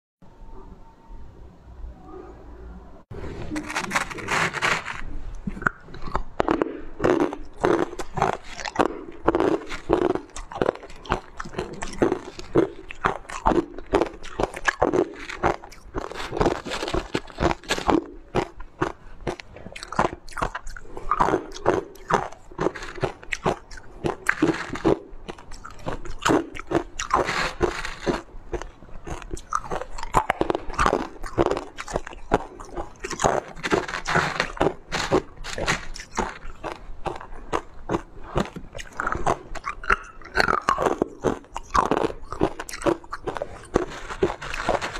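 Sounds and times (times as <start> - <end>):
ice crunching while chewed: 3.4 - 44.9.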